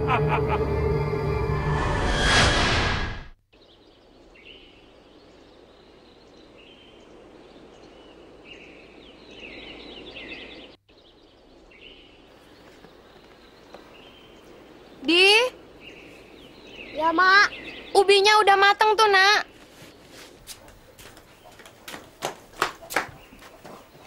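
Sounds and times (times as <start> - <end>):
loud film music: 0.0 - 2.5
small birds chirping: 3.5 - 24.0.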